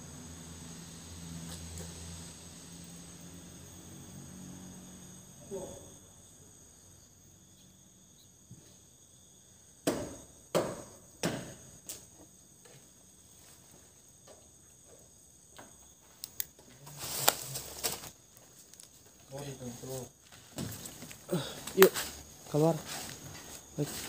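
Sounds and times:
night insects chirping: 0.0 - 24.0
sharp knocks: 9.8 - 11.6
scuffling: 20.2 - 24.0.

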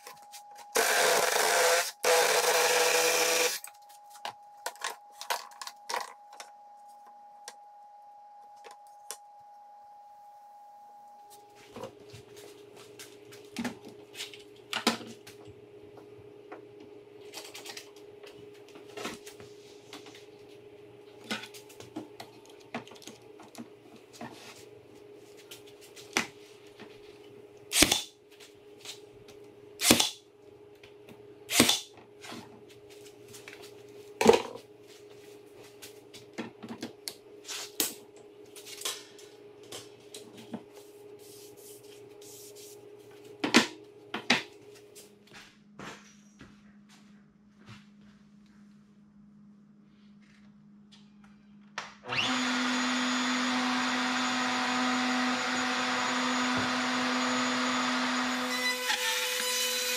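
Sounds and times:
brad nailer shots into wood: 27.7 - 28.1, 29.8 - 30.2, 31.5 - 31.9.

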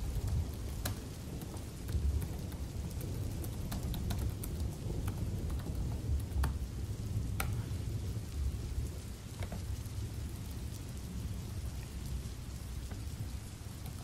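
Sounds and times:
laptop keyboard typing: 0.0 - 6.6
steady rain: 0.0 - 14.0.

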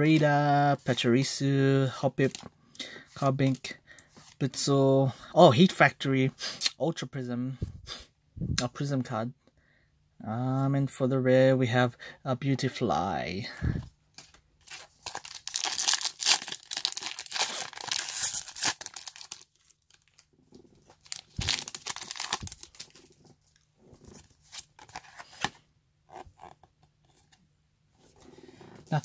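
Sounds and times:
foil wrapper crinkling and tearing: 14.2 - 25.5.

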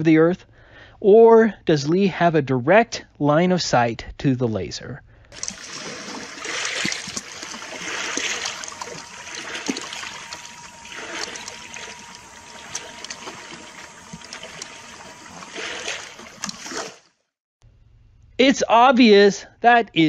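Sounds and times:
small waves lapping and splashing: 5.4 - 17.2
small clicks: 8.2 - 16.8.

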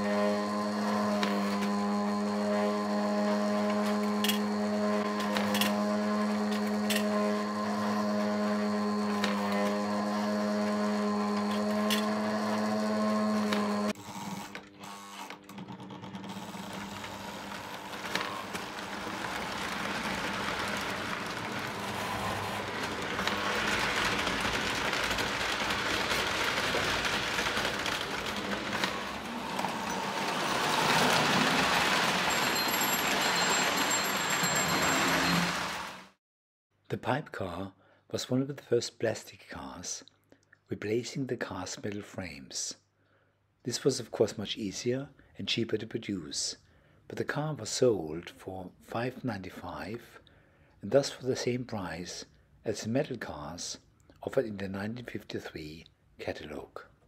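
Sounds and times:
toy train rolling on track: 0.0 - 36.1
electric conveyor humming: 0.0 - 36.2.

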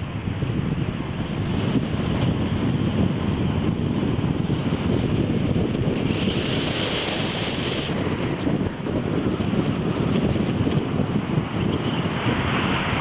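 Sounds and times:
car road and wind noise: 0.0 - 13.0
thin high wavering whine: 4.4 - 12.6.

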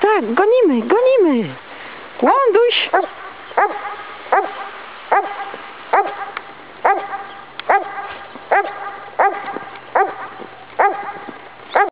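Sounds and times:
dog barking: 2.9 - 11.9.

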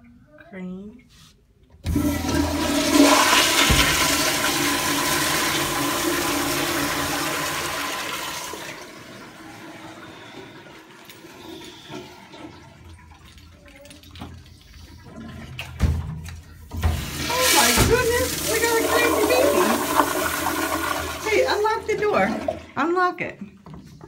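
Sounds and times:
toilet flushing: 1.8 - 13.7, 16.7 - 23.0.

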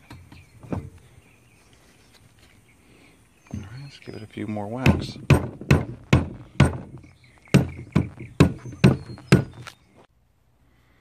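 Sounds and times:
rubber mallet striking metal: 4.9 - 9.5.

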